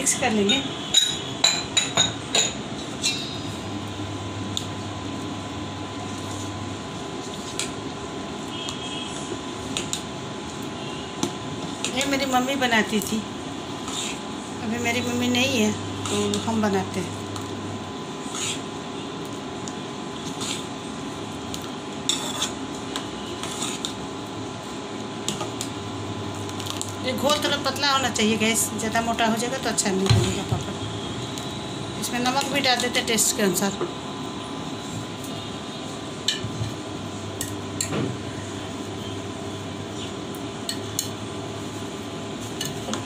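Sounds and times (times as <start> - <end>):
steady hum: 0.0 - 43.0
ladle stirring batter in pan: 13.6 - 14.4, 17.4 - 18.8, 20.2 - 24.0
ladle scraping metal bowl: 18.2 - 18.7, 22.1 - 22.6, 23.2 - 24.0.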